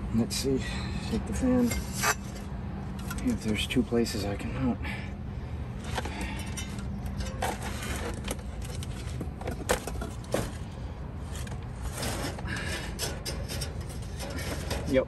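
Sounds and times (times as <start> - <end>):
low steady hum: 0.0 - 15.0
metallic clicks and scrapes: 1.6 - 3.8, 5.8 - 15.0.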